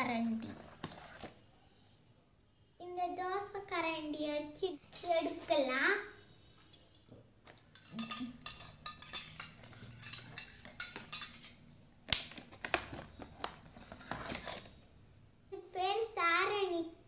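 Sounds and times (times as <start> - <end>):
light metal clinks: 6.7 - 11.6
plastic packaging crackling: 12.1 - 14.6.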